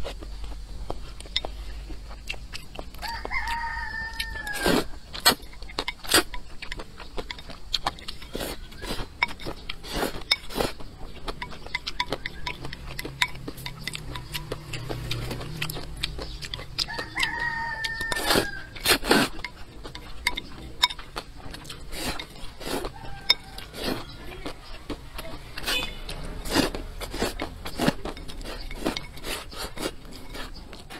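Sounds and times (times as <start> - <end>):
person slurping and chewing noodles: 0.0 - 30.9
rooster crowing: 3.0 - 5.2, 16.8 - 18.8, 22.8 - 24.2.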